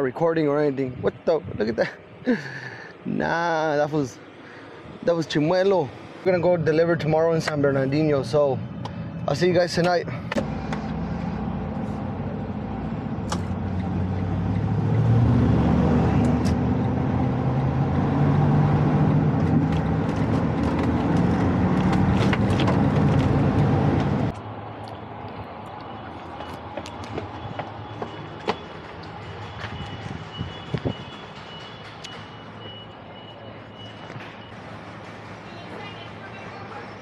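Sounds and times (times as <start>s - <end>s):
diesel truck engine running: 8.7s - 24.4s.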